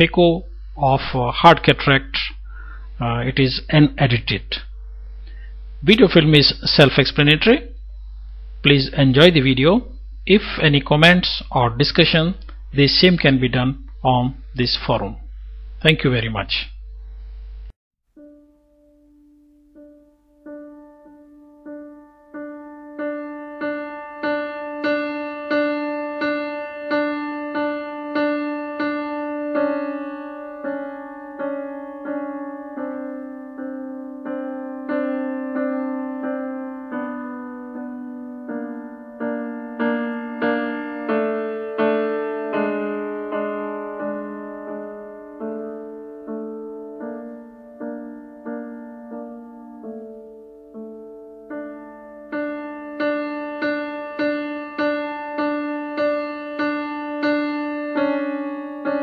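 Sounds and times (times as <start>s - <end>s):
piano single notes: 18.1s - 59.0s.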